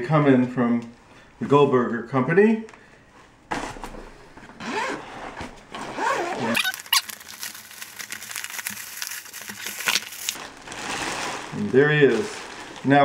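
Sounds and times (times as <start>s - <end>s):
zipper being pulled open: 4.6s - 7.2s
plastic wrapping crinkling: 6.5s - 13.0s.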